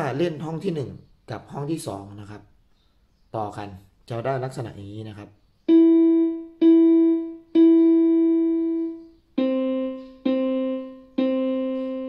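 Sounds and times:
electronic keyboard piano notes: 5.7s - 12.0s.

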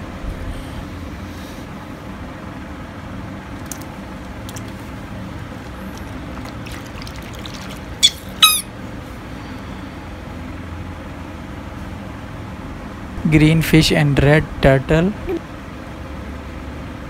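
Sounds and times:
toys splashing in water: 3.6s - 8.7s
high-pitched rubber toy squeaks: 8.0s - 8.7s.

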